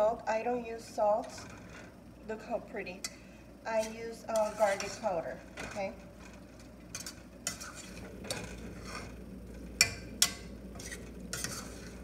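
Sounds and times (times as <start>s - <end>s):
utensil scraping a saucepan: 1.2s - 1.9s, 3.0s - 9.2s, 9.8s - 12.0s.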